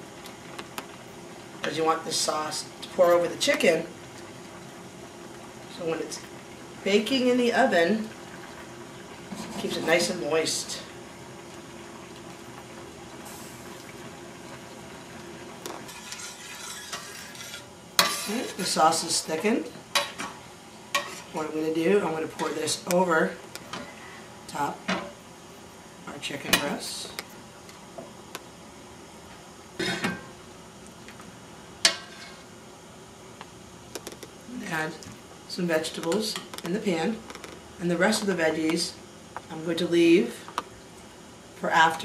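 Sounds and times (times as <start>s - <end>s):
sauce simmering and bubbling: 8.0s - 18.3s.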